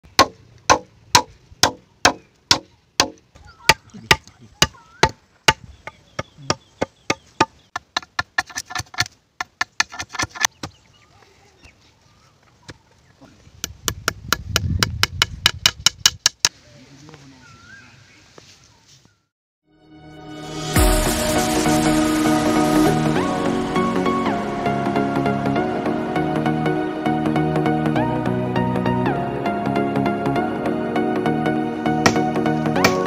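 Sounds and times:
machete chopping bamboo: 0:00.1 - 0:10.8.

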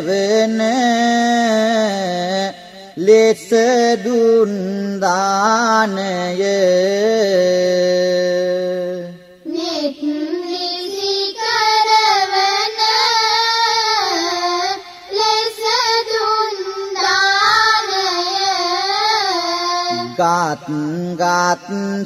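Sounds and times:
high child-like voice singing: 0:09.5 - 0:20.3
low male voice chanting: 0:19.9 - 0:22.0.

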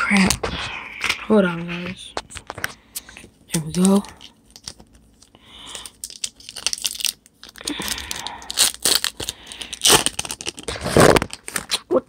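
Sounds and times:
foil wrapper tearing and crinkling: 0:03.5 - 0:11.9.

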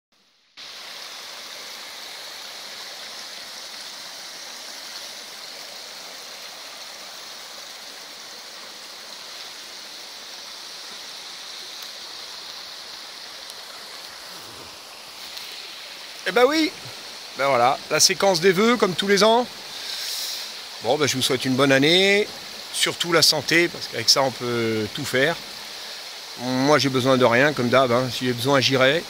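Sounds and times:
brook running over stones: 0:00.6 - 0:29.0.

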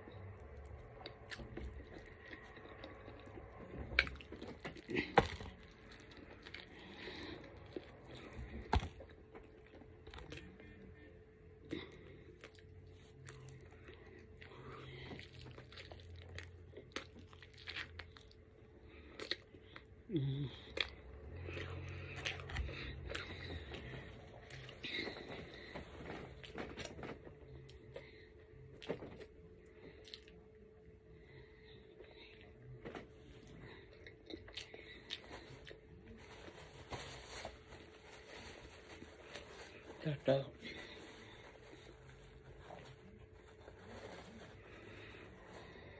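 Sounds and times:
biting and chewing sandwich: 0:00.1 - 0:10.9, 0:11.6 - 0:28.1
chewing with mouth clicks: 0:12.4 - 0:18.5, 0:30.0 - 0:30.5
paper napkin rustling: 0:40.8 - 0:45.6.

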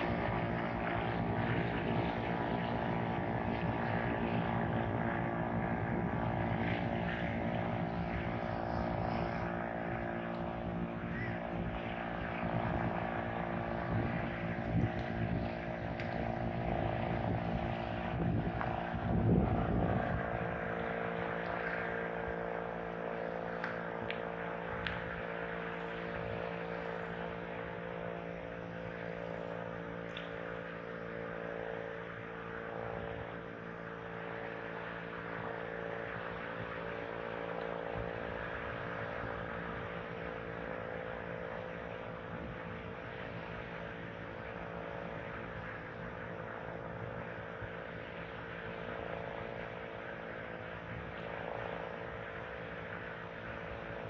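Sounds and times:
steady motor-like drone: 0:00.0 - 0:54.0.

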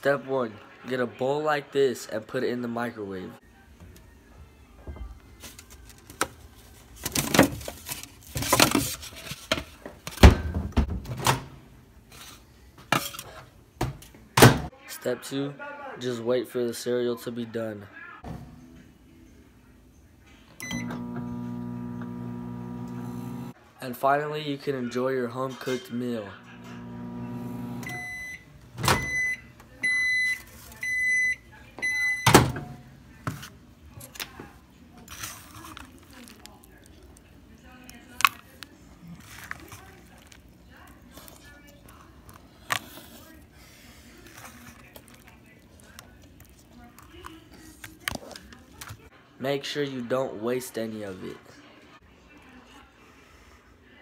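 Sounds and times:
foam bowls scraping and rustling: 0:06.6 - 0:09.8
microwave beeps: 0:20.6 - 0:23.5, 0:26.6 - 0:32.7
microwave oven humming: 0:20.6 - 0:23.5, 0:26.4 - 0:29.3.

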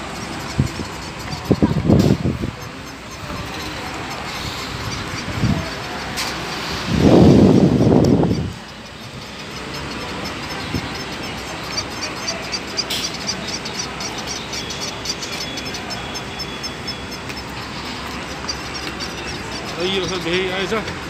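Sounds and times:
faint high ticks: 0:00.0 - 0:21.0
outdoor background noise: 0:00.0 - 0:21.0.

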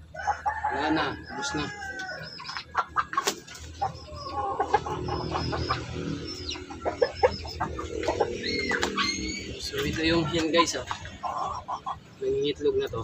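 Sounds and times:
chickens clucking: 0:00.0 - 0:13.0
high sliding calls: 0:03.8 - 0:12.0.

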